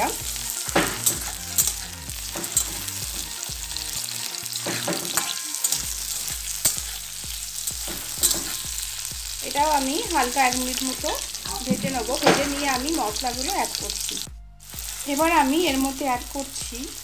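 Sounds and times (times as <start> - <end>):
vegetables sizzling in hot oil: 0.0 - 17.0
spatula scraping a pan: 0.6 - 3.3, 4.4 - 9.1.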